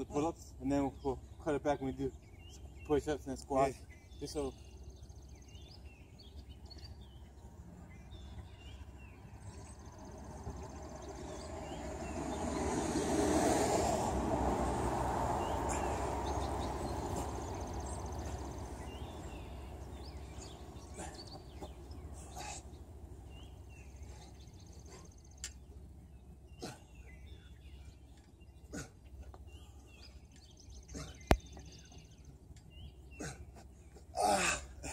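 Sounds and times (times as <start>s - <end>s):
steady low rumble: 4.8s - 32.8s
broad rushing noise: 10.1s - 24.9s.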